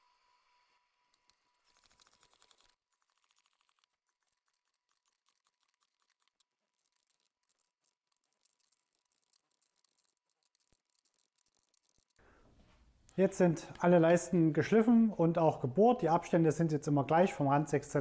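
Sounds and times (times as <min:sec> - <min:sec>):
rapid fine clicking: 0:01.8 - 0:12.2.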